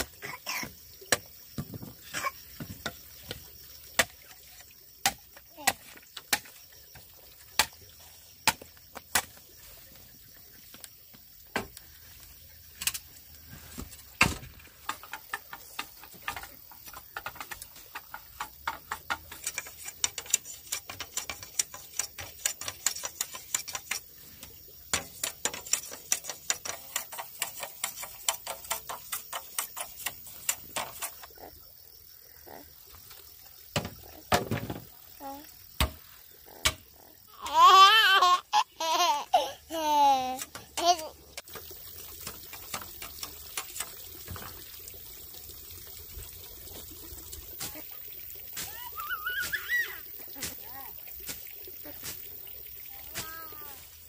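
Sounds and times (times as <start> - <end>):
machete chopping bamboo: 5.0 - 6.5, 8.4 - 9.3, 14.2 - 14.5, 35.8 - 36.8.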